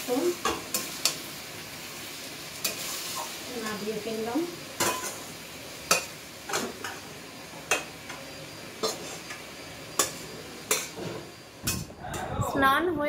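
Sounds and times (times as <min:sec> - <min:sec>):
metal spatula scraping a pan: 0:08.8 - 0:12.2.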